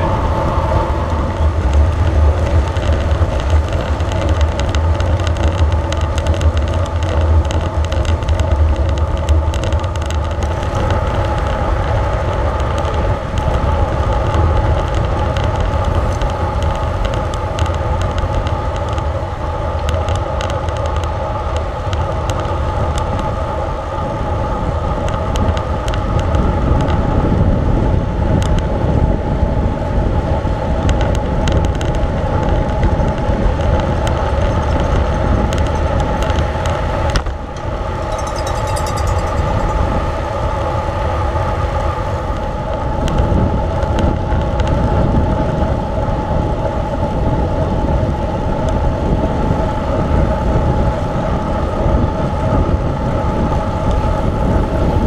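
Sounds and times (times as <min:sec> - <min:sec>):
bicycle tyres on road: 0:00.0 - 0:55.0
wind rumble on microphone: 0:00.0 - 0:55.0
small rattles: 0:31.6 - 0:40.1.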